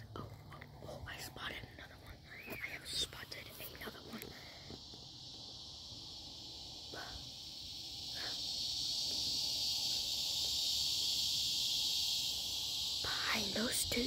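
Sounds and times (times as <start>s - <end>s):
high-pitched insect chorus: 0.0s - 14.0s.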